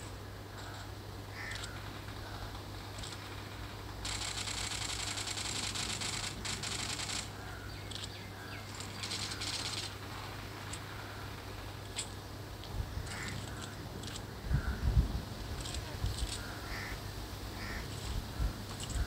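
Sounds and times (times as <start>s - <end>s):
steady low hum: 0.0s - 19.0s
rapidly pulsing high chatter: 1.2s - 14.3s.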